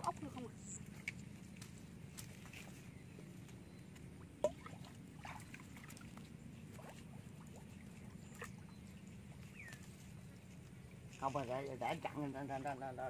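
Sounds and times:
hands sloshing in water: 0:00.0 - 0:11.4
low steady hum: 0:00.0 - 0:13.0
sharp splash: 0:04.4 - 0:08.6.

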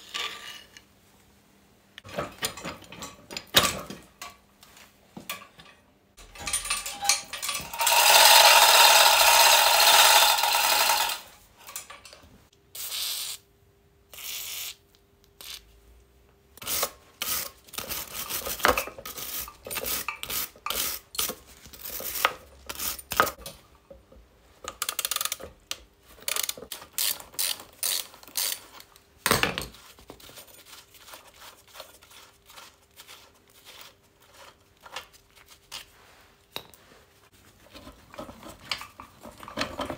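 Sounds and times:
ratchet wrench clicking: 0:24.8 - 0:25.4, 0:26.3 - 0:28.6.

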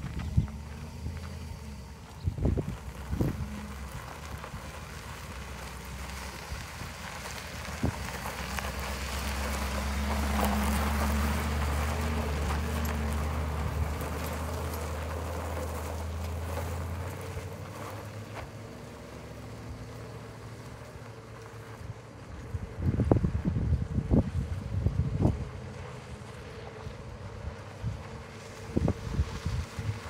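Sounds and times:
truck engine driving past: 0:00.0 - 0:30.0
tyres crunching on gravel: 0:00.0 - 0:30.0.

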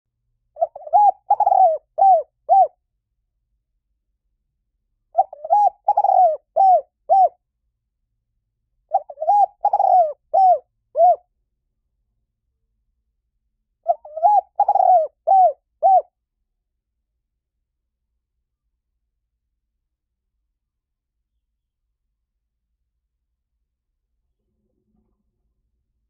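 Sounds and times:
dove cooing: 0:00.6 - 0:02.8, 0:05.1 - 0:07.4, 0:08.9 - 0:11.2, 0:13.8 - 0:16.1.

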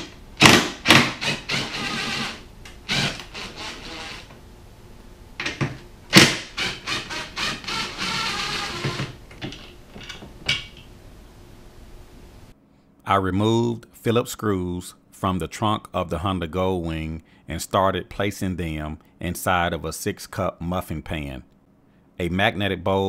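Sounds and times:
cordless power tool running: 0:00.4 - 0:04.3, 0:06.2 - 0:09.2.

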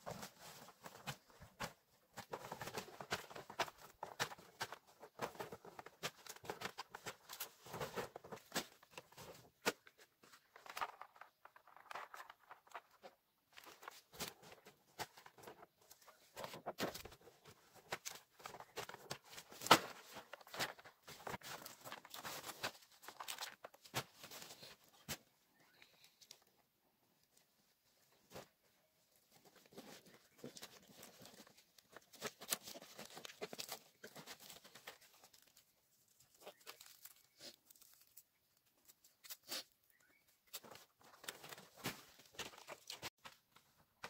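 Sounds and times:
leaves rustling and crackling: 0:36.1 - 0:39.6.

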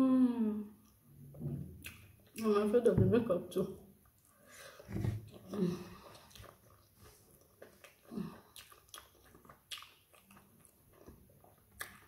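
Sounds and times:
chewing and lip smacks: 0:01.8 - 0:02.4, 0:05.3 - 0:12.0
small mouth clicks: 0:01.8 - 0:02.4.

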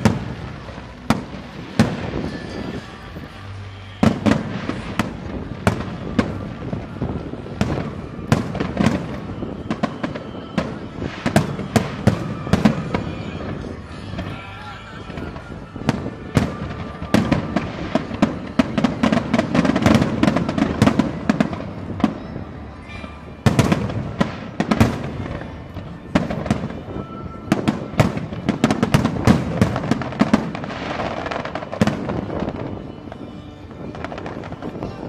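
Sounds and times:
fireworks bangs: 0:00.0 - 0:35.0
fireworks crackling: 0:00.0 - 0:35.0.

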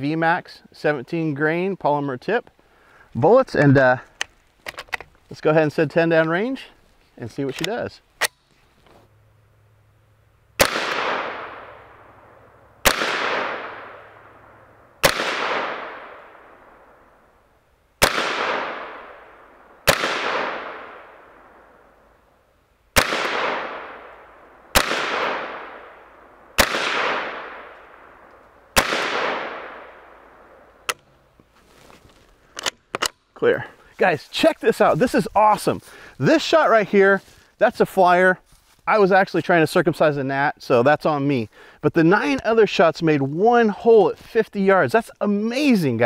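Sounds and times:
rifle shots with echo: 0:10.6 - 0:17.1, 0:18.0 - 0:21.9, 0:23.0 - 0:30.9.

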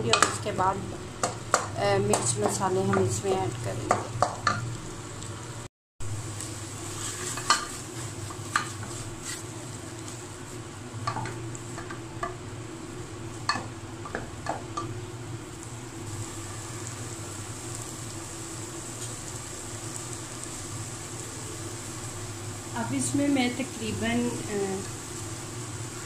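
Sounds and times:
frying sizzle: 0:00.0 - 0:26.0
spatula knocking pot: 0:00.1 - 0:00.4, 0:01.2 - 0:03.2, 0:03.8 - 0:04.6, 0:13.5 - 0:14.9
spatula scraping pot: 0:06.9 - 0:09.5.

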